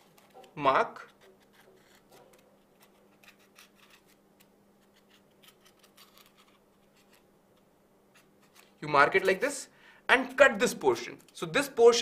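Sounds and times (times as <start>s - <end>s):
marker pen scratching polystyrene: 0.0s - 4.2s
faint steady hum: 0.0s - 11.9s.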